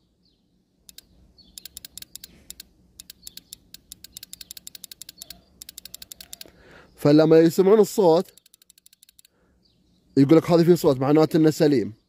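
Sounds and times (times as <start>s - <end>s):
relay clicking: 1.6s - 6.5s, 8.4s - 9.3s.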